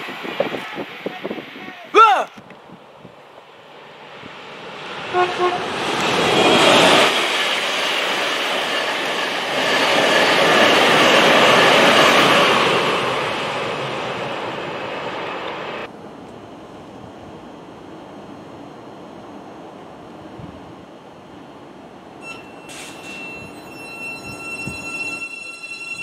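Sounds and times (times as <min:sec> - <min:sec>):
train rushing through station: 0:00.0 - 0:26.0
train horn toots: 0:05.1 - 0:05.8.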